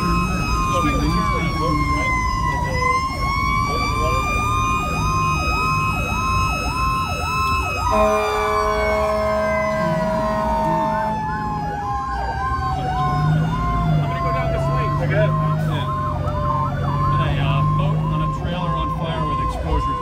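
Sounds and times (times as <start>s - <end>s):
electronic siren yelping: 0.0s - 20.0s
slow siren tone: 0.0s - 20.0s
truck engine rumbling: 0.0s - 20.0s
horn steady chord: 7.9s - 11.2s.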